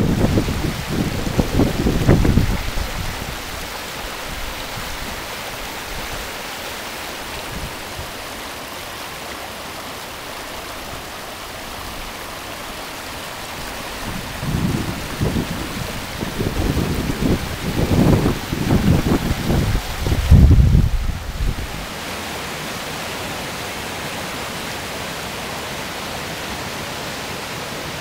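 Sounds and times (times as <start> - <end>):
wind buffeting microphone: 0.0 - 5.2, 13.6 - 21.9
river rushing over rocks: 0.0 - 28.0.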